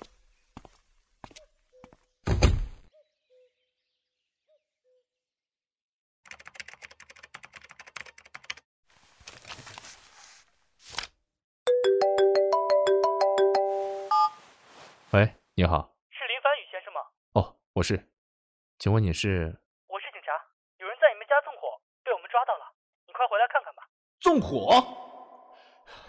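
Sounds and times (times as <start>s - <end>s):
mobile phone ringtone: 11.7s - 14.4s.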